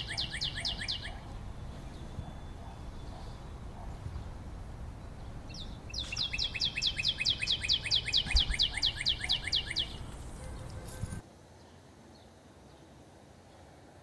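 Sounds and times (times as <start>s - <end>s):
bird trilling chirps: 0.0s - 10.9s.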